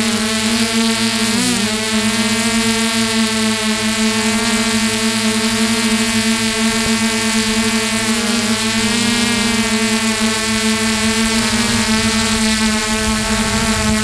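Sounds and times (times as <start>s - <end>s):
drone propellers humming: 0.0s - 14.0s.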